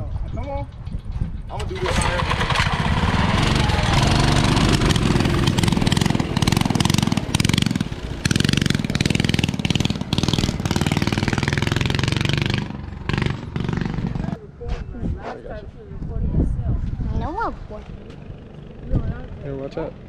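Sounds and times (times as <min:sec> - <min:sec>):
mini bike engines revving: 0:01.5 - 0:14.4.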